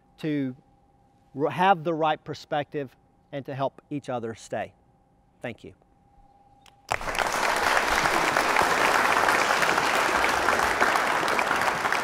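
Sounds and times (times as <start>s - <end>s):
audience applauding: 6.9s - 12.0s.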